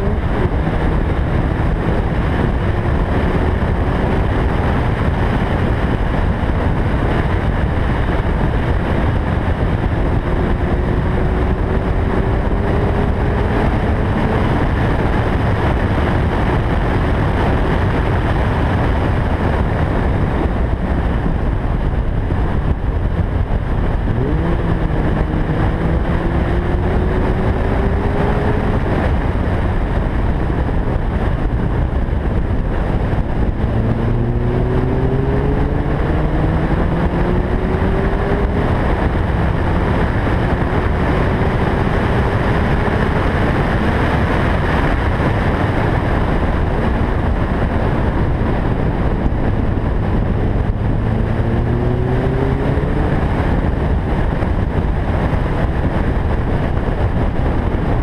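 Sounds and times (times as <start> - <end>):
wind and road noise: 0.0 - 58.0
car engine revving hard: 9.4 - 14.7, 23.0 - 29.5, 32.4 - 44.2, 48.7 - 54.1.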